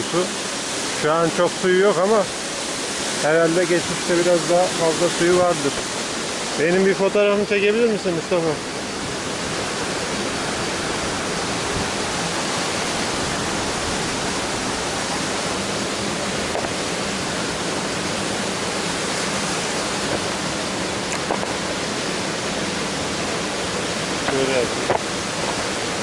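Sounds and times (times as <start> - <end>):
stream rushing over rock: 0.0 - 26.0.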